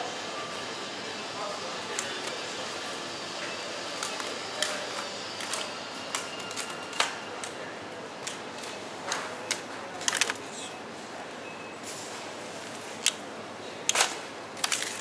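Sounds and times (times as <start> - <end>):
sharp clicks and clatters: 13.9 - 15.0.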